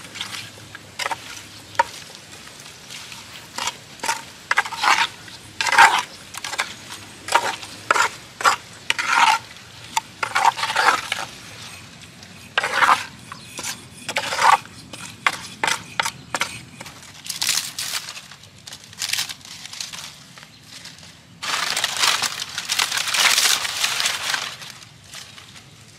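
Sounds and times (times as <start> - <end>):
wooden spatula scraping clay pot: 0.0 - 18.2.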